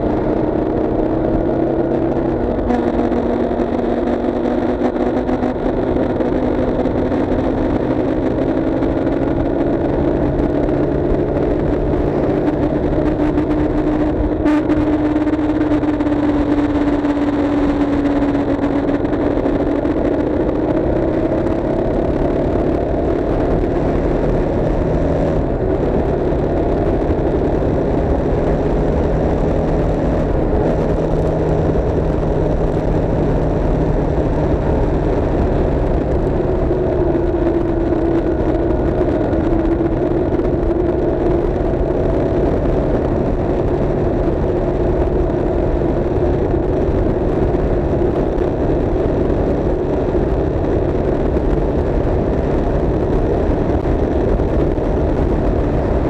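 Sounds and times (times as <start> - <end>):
road noise: 0.0 - 56.0
vehicle engine running: 0.0 - 56.0.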